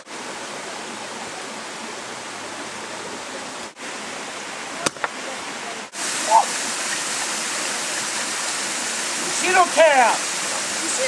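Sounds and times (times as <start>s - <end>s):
waterfall and stream rushing: 0.0s - 11.0s
wooden board cracking: 4.8s - 5.1s.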